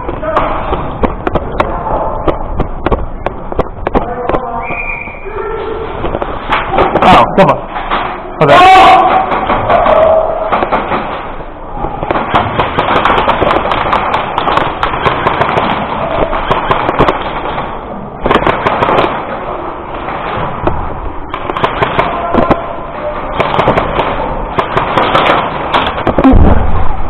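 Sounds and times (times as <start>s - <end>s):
airsoft guns firing: 0.0s - 4.8s, 6.0s - 27.0s
voices: 0.0s - 10.6s, 21.9s - 23.4s.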